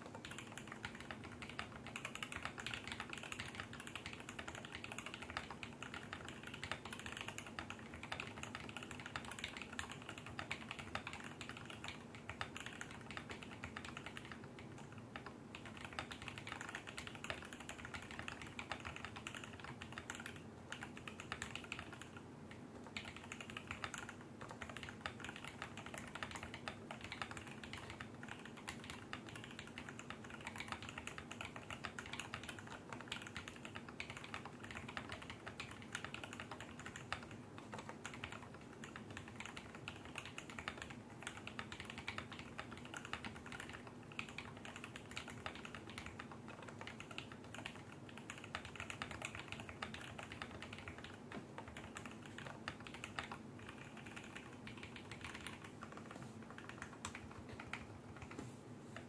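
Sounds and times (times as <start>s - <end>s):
fast typing on mechanical keyboard: 0.0s - 58.4s
faint steady hum: 0.0s - 59.0s.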